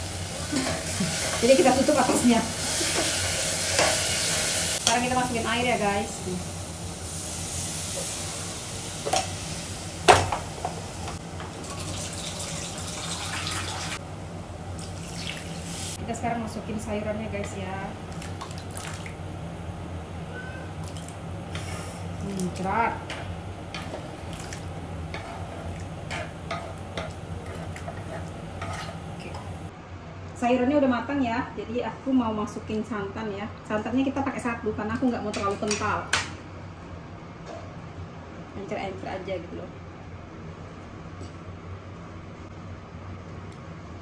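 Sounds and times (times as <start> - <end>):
water pouring into a pot: 11.7 - 14.0, 18.1 - 19.2
steady low hum: 14.0 - 34.9.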